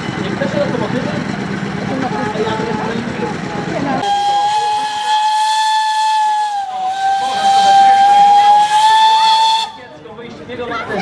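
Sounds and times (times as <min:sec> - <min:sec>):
steam hissing: 0:04.0 - 0:09.8
steam locomotive whistle: 0:04.0 - 0:09.8.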